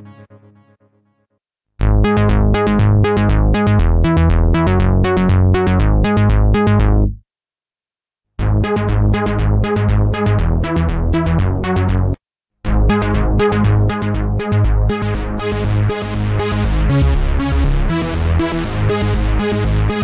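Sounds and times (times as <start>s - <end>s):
synthesizer arpeggio: 1.8s - 7.1s, 12.7s - 20.0s
strong bass: 1.8s - 7.2s, 8.4s - 20.0s.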